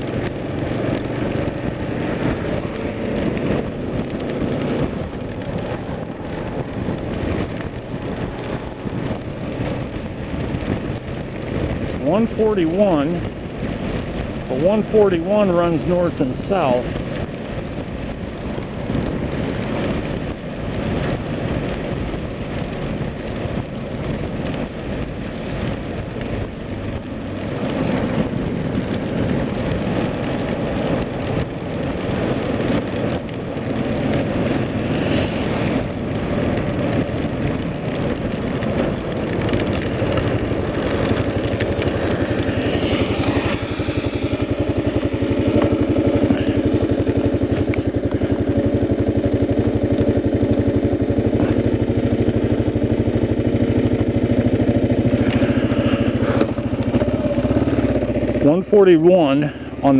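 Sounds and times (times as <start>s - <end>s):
motorcycle engine running: 0.0s - 59.9s
tyres on wet pavement: 0.0s - 59.9s
wind rushing: 25.0s - 49.9s.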